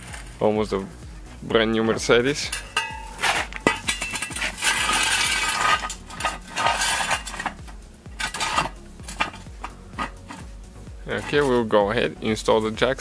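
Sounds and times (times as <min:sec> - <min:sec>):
metal scraping: 0:00.0 - 0:12.1.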